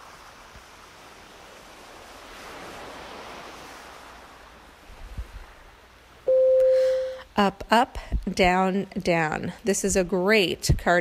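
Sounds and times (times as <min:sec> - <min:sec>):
ocean surf washing on beach: 0:00.0 - 0:07.2.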